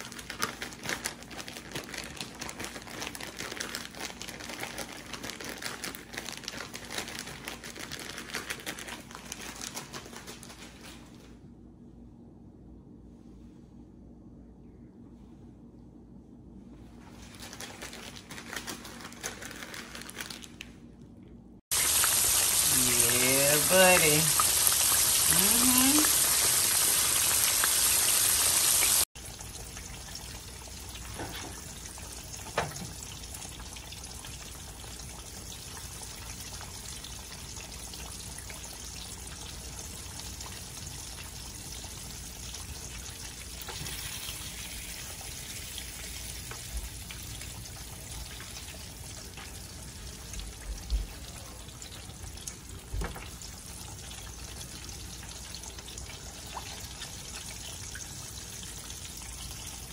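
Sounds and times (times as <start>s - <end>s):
fish frying in hot oil: 21.7s - 59.9s.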